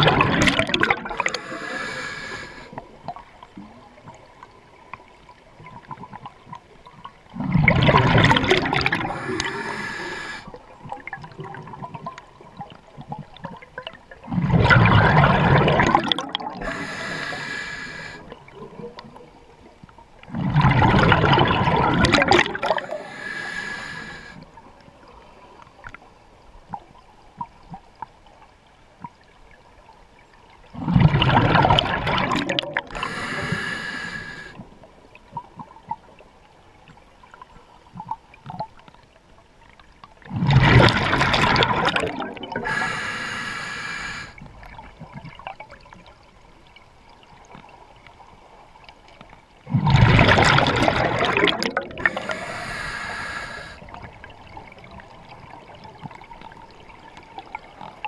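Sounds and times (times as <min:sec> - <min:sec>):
exhaled bubbles rushing: 0:00.0 - 0:02.4, 0:07.3 - 0:10.4, 0:13.8 - 0:18.7, 0:20.3 - 0:24.4, 0:30.8 - 0:34.5, 0:40.3 - 0:42.9, 0:49.7 - 0:55.2
regulator inhale hiss: 0:01.1 - 0:02.8, 0:09.0 - 0:10.6, 0:16.6 - 0:18.3, 0:22.6 - 0:24.4, 0:32.9 - 0:34.6, 0:42.6 - 0:44.4, 0:52.0 - 0:53.9.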